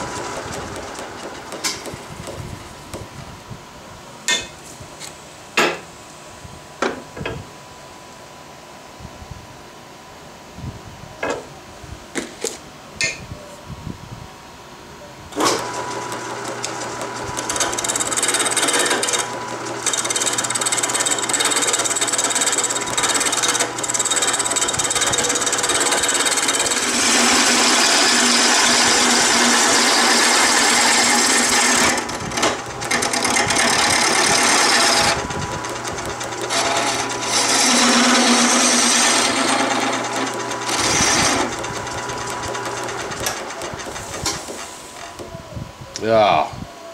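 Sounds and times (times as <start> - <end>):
lathe motor hum: 0.0 - 2.4, 15.4 - 45.2
gouge scraping spinning wood: 0.0 - 3.0, 15.4 - 45.2.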